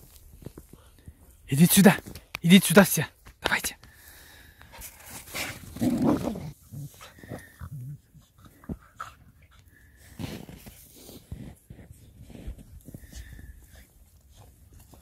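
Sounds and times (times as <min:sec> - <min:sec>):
dogs wrestling in snow: 0:00.0 - 0:15.0
dogs growling: 0:05.3 - 0:09.3.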